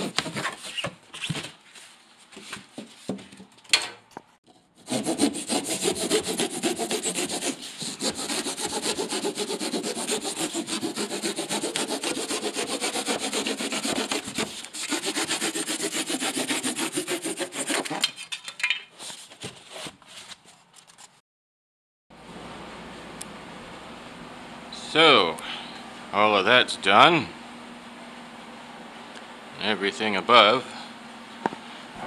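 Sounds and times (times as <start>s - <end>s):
hand saw cutting: 4.8s - 18.2s.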